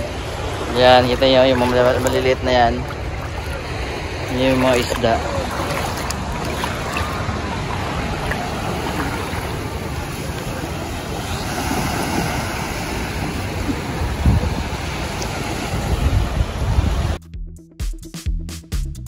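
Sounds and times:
small waves washing on sand: 0.0s - 17.2s
wind buffeting microphone: 0.0s - 17.2s.

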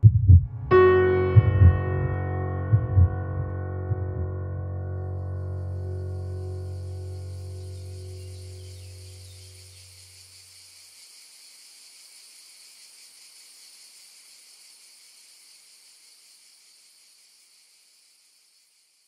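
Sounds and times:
low music note: 0.4s - 8.1s
high-pitched hiss: 5.8s - 19.0s.

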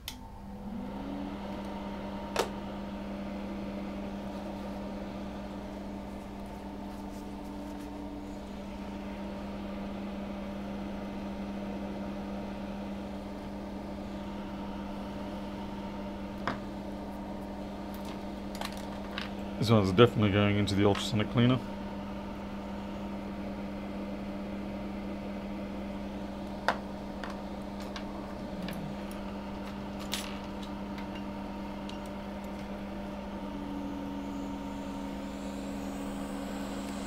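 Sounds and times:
small electric motor humming: 26.6s - 37.0s.

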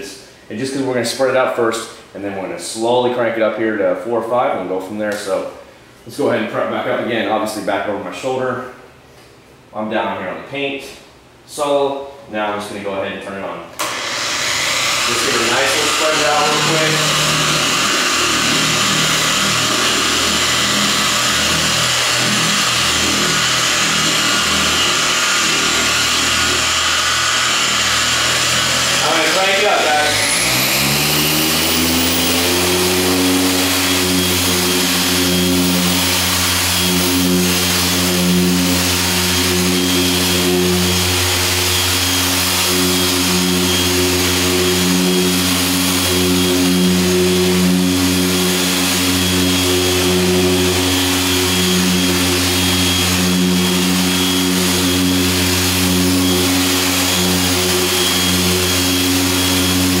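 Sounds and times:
car polisher motor humming: 13.8s - 60.0s.

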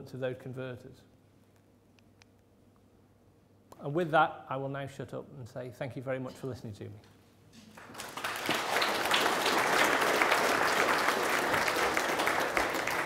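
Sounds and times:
audience applauding: 7.8s - 13.0s.

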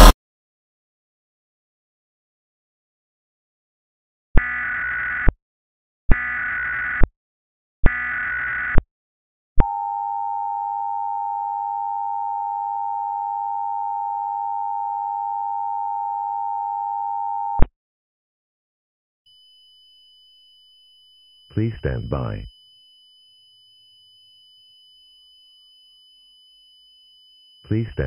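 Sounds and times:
digital data tones: 19.3s - 28.0s
steady two-tone alert signal: 19.3s - 28.0s.

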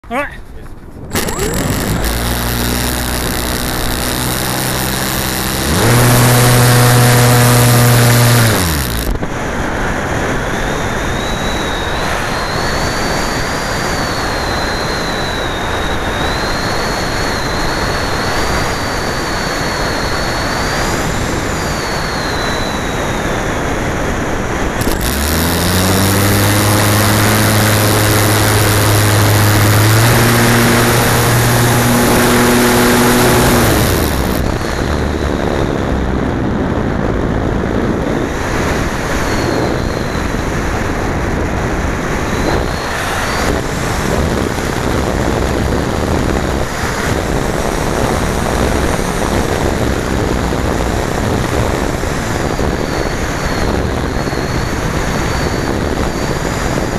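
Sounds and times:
model aircraft motor and propeller: 1.1s - 56.9s
thin wavering whistle: 10.4s - 23.7s, 39.0s - 40.6s.

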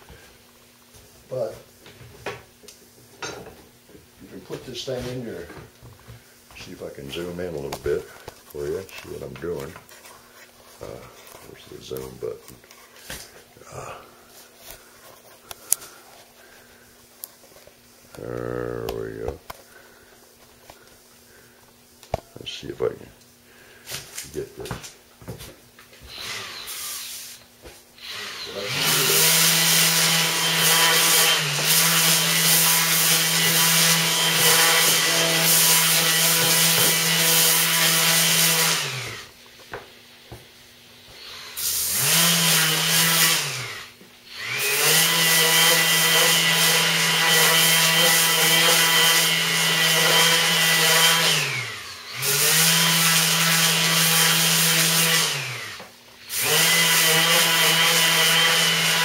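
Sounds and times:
electric sander humming: 28.1s - 39.3s
sanding pad grinding on wood: 28.1s - 39.3s, 44.4s - 59.0s.

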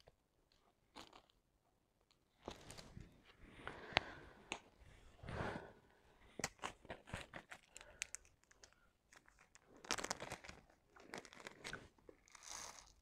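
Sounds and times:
plastic film crinkling: 7.3s - 12.6s.

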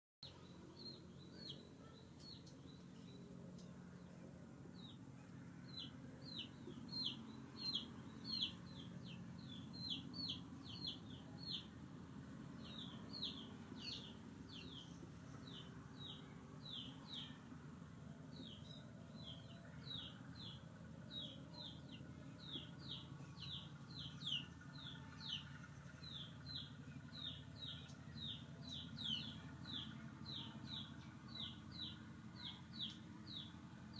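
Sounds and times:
faint low hum: 0.2s - 33.9s
bird peeping: 5.8s - 11.7s.

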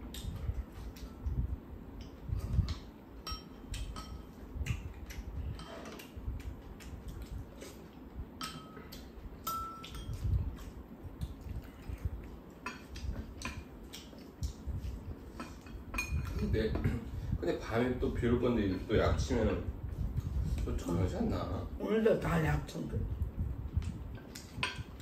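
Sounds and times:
cutlery clinking on ceramic bowls: 3.2s - 4.4s, 8.4s - 8.8s, 9.4s - 10.2s, 15.4s - 16.4s.

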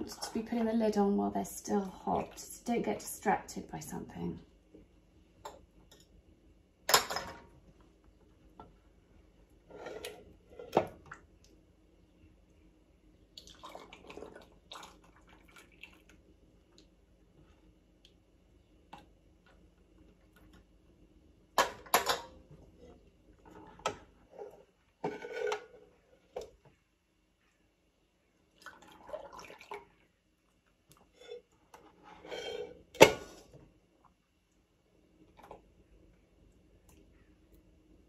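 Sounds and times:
jelly pouring and dripping: 13.2s - 17.0s.

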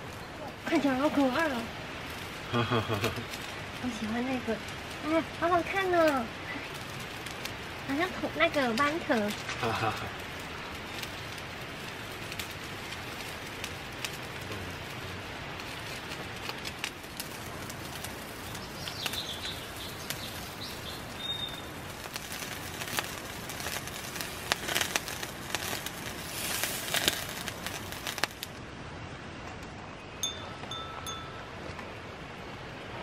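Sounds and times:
meat sizzling on a grill pan: 0.7s - 28.5s
bird chirps: 18.5s - 21.7s.

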